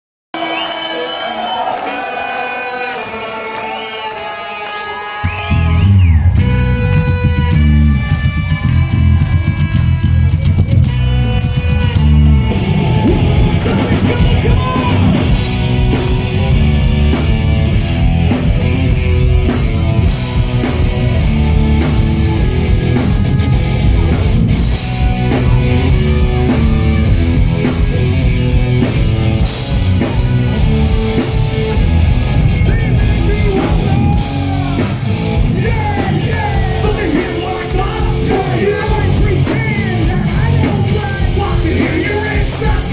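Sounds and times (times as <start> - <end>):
live rock band playing: 1.7 - 42.9
vocalist singing and shouting: 11.9 - 16.6, 32.4 - 42.9.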